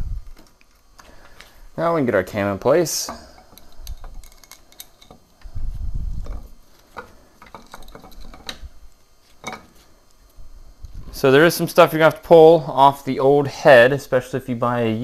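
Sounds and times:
metallic clicks and clinks: 3.4s - 5.2s.

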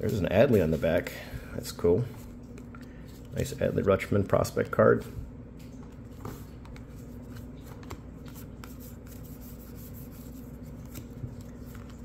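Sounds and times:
cards flipped through by hand: 5.6s - 12.0s.

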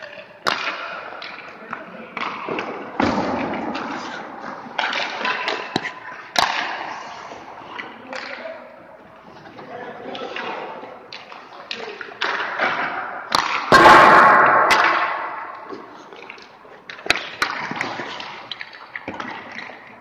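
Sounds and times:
pucks striking goalie pads: 0.0s - 8.4s, 10.2s - 19.9s
skates scraping ice: 0.0s - 8.4s, 14.7s - 20.0s.

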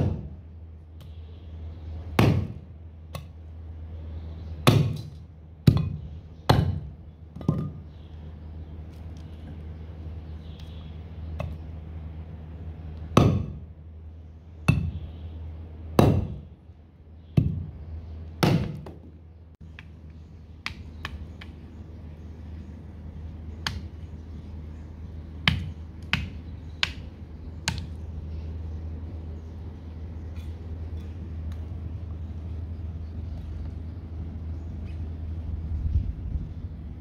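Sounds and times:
steady low hum: 0.0s - 37.0s
cleaver chopping bone on wood: 25.5s - 27.1s, 27.7s - 27.9s.

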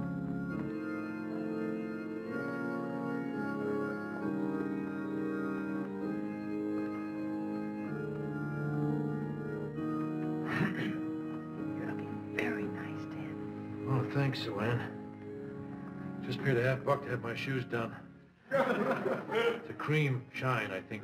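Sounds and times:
organ playing held chords: 0.0s - 21.0s.

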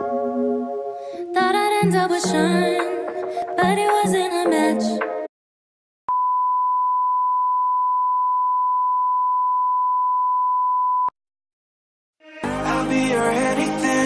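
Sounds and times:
music: 0.0s - 5.3s, 12.2s - 14.0s.

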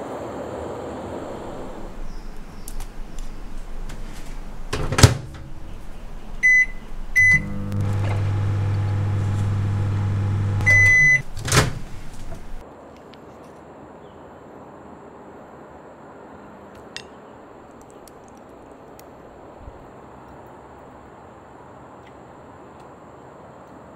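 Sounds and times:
microwave oven humming: 1.3s - 12.6s
microwave door clacking: 1.8s - 12.6s
microwave keypad beeps: 3.8s - 11.4s
long microwave beep: 6.4s - 11.3s.

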